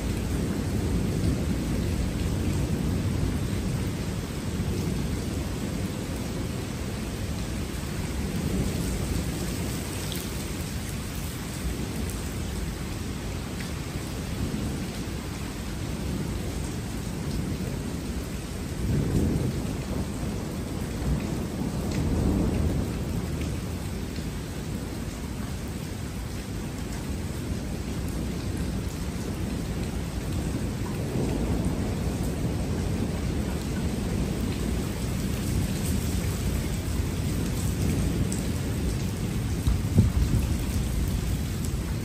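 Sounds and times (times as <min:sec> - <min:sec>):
steady rain: 0:00.0 - 0:42.0
thunder rumbling: 0:15.8 - 0:42.0.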